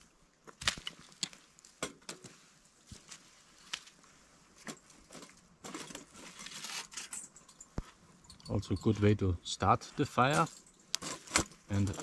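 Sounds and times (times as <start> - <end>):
twig fire crackling: 0.0 - 7.0.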